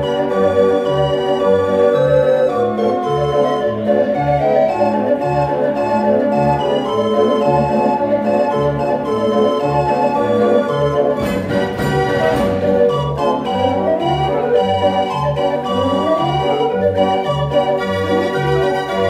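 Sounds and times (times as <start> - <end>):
street organ playing a tune: 0.0 - 19.0
percussion crash: 11.2 - 13.2.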